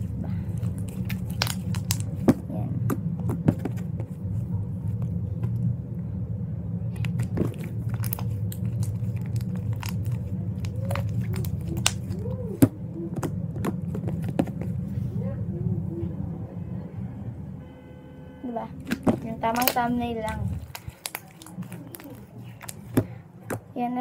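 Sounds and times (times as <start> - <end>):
low background hum: 0.0 - 24.0
slime clicking and popping: 0.6 - 2.4, 6.9 - 12.3, 18.8 - 23.6.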